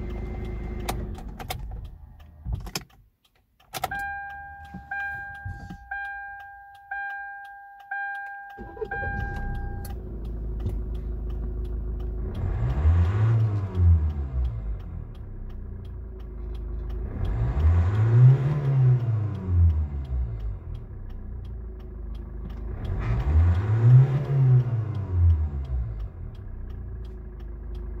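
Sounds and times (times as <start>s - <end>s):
car engine revving: 8.6s - 28.0s.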